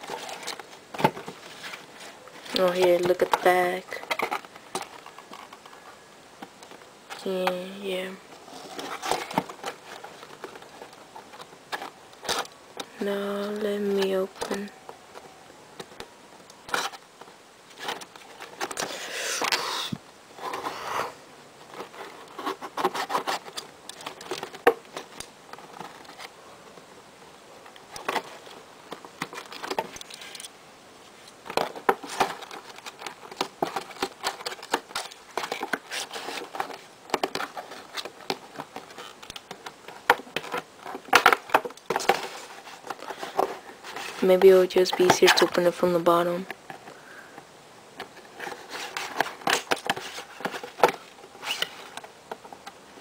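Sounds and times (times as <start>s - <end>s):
cardboard box scraping and rustling: 0.0s - 4.3s.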